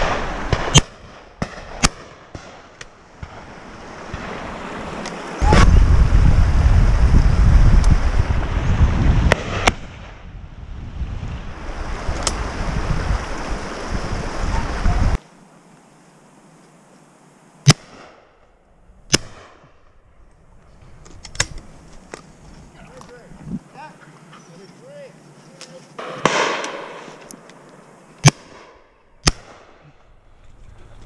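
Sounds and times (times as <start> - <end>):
close shotgun shots with echo: 0.0 - 2.7, 26.0 - 27.2, 28.2 - 29.8
distant shotgun shots: 0.0 - 4.4, 26.0 - 27.2, 28.2 - 29.8
wind buffeting microphone: 3.2 - 15.2, 20.1 - 23.7.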